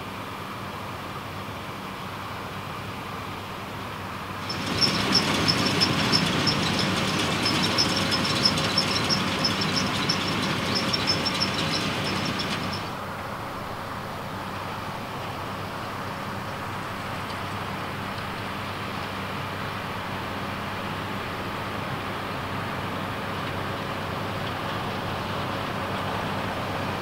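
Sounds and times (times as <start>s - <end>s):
tractor engine running: 4.2s - 13.2s, 15.1s - 27.0s
baler metallic clicking and rattling: 4.4s - 13.0s.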